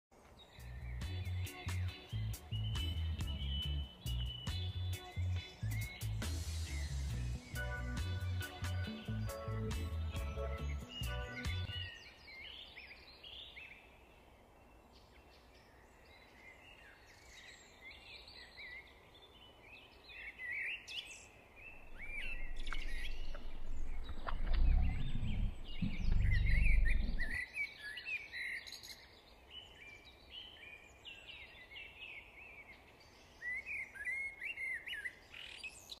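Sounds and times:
songbirds chirping and trilling: 0:00.1 - 0:36.0
low rumble: 0:21.7 - 0:27.4.

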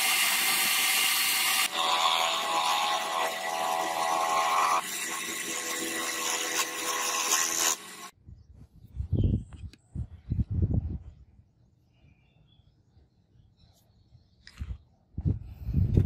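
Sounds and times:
lathe motor whine: 0:00.0 - 0:08.1.

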